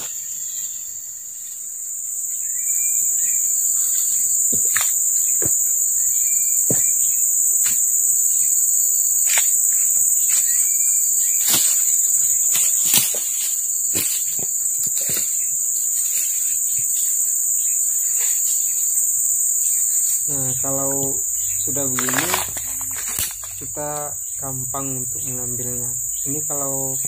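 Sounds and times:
forest insects droning: 0.0 - 27.0
dry leaves and twigs snapping: 3.2 - 8.1, 9.1 - 18.8, 20.1 - 26.7.

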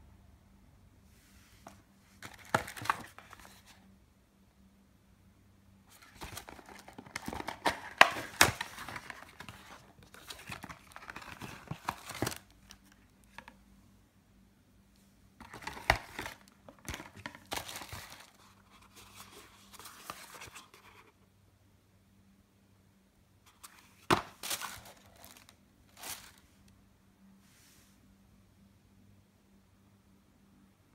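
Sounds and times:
cardboard and paper rustling: 1.6 - 3.8, 5.9 - 13.5, 15.4 - 21.1, 23.5 - 26.5.

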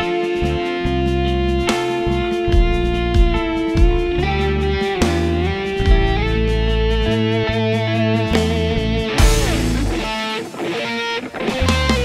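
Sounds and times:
low bass notes: 0.0 - 10.2, 11.4 - 12.0
electric guitar sustained note: 6.2 - 12.0.

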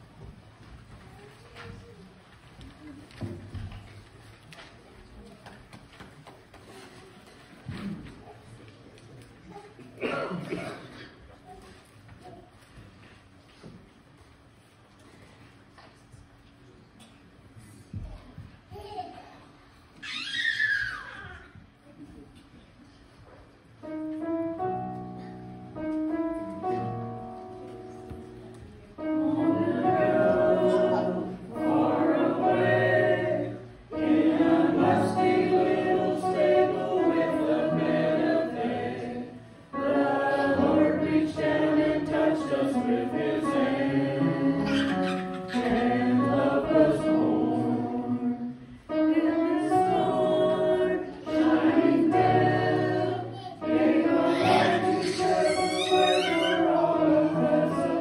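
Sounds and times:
mixed choir singing: 29.0 - 58.0.

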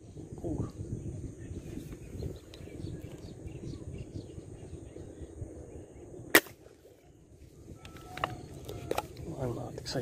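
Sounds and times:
wind noise on microphone: 0.0 - 10.0
airgun shot: 6.3 - 6.7.

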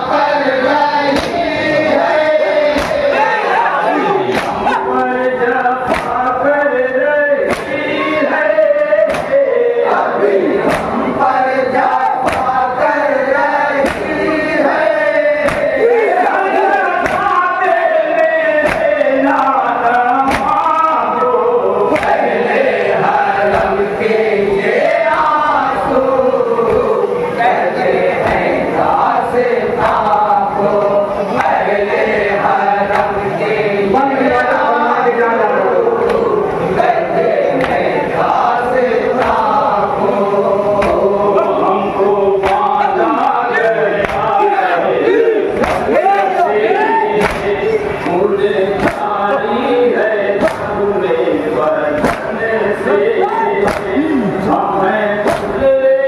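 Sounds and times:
group of men chanting a lament: 0.0 - 56.0
lead voice through a microphone: 0.0 - 56.0
hand slaps on chest: 2.8 - 3.0, 4.3 - 4.6, 7.5 - 7.8, 9.1 - 9.4, 10.7 - 10.9, 12.2 - 12.5, 15.4 - 15.7, 18.6 - 18.9, 20.3 - 20.6, 21.9 - 22.2, 47.2 - 47.5, 52.0 - 52.3, 53.6 - 53.9
hands striking chests: 4.3 - 4.7, 7.5 - 7.8, 9.1 - 9.4, 10.6 - 11.0, 15.4 - 15.8, 18.6 - 19.0, 20.2 - 20.6.

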